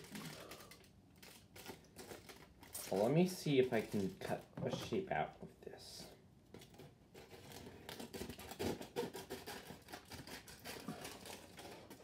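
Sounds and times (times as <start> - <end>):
foil crinkling: 0.0 - 4.5, 6.6 - 12.0
scissors cutting foil: 7.2 - 12.0.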